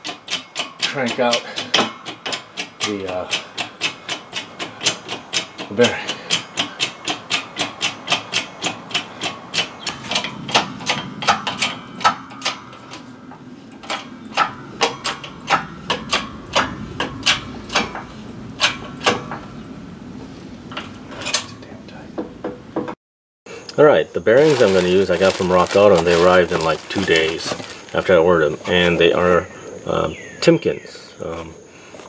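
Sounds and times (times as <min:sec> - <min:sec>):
rapid metallic clicks: 0:00.0 - 0:19.3
low hum: 0:08.8 - 0:22.1.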